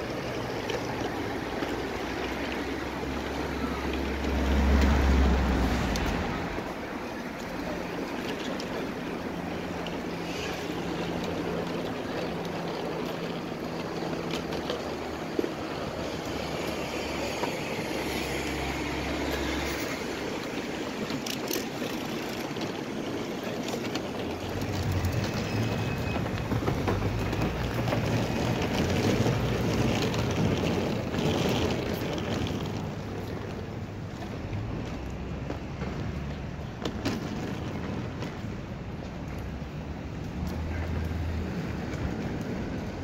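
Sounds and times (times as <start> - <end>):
deep engine rumble: 0.0 - 21.2
city street traffic: 0.0 - 43.0.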